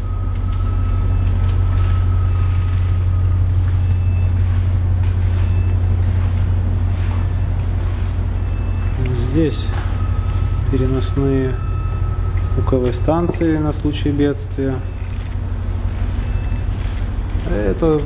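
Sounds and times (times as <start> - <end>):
faint electronic beeps: 0.0 - 18.0
low machinery hum: 0.0 - 18.0.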